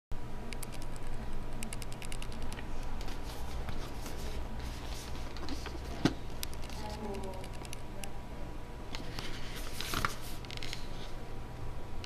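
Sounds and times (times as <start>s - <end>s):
low steady hum: 0.2s - 12.0s.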